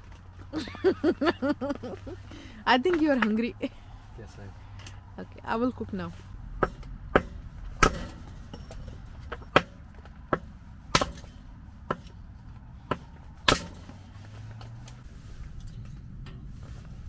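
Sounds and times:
blade chopping into wood: 0:06.6 - 0:08.4, 0:10.4 - 0:12.2, 0:12.9 - 0:14.0.

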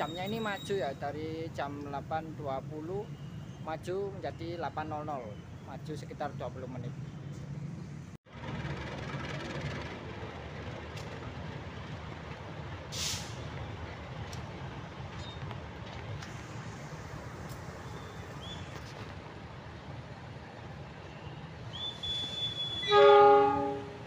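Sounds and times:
diesel locomotive engine drone: 0:06.8 - 0:24.0
air brake hiss: 0:12.9 - 0:13.4.

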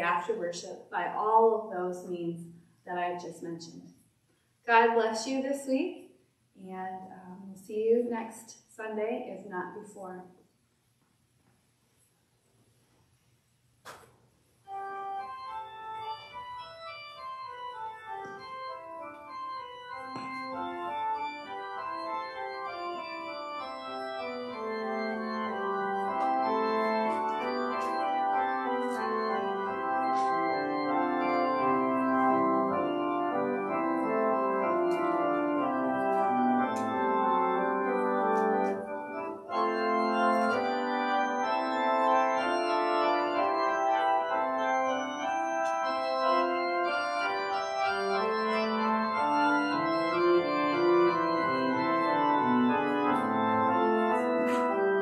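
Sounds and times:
organ music: 0:14.6 - 0:55.0.

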